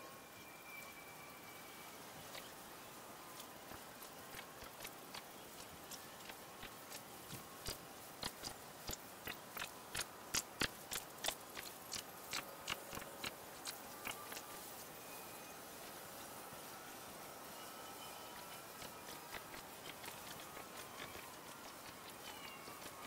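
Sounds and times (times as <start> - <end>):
light ticks: 3.3 - 14.6.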